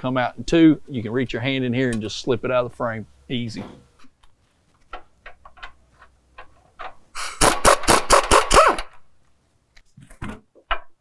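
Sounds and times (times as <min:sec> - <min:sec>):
power tool pulsing: 0:07.2 - 0:08.9.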